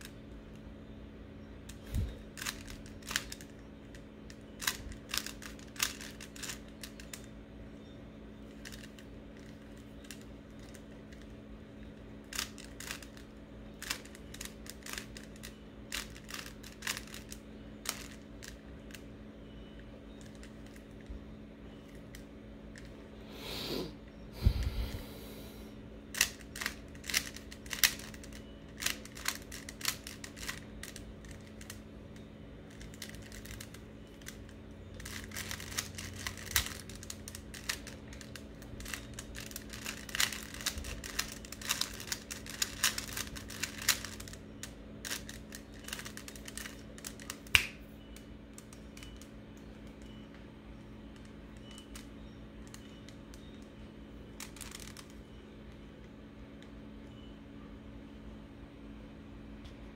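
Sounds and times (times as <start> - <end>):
steady low hum: 0.0 - 59.9
puzzle cube clicking: 1.7 - 3.5, 4.3 - 7.3, 8.6 - 10.8, 12.3 - 13.2, 13.8 - 19.0, 26.1 - 31.8, 32.7 - 34.4, 35.0 - 47.8.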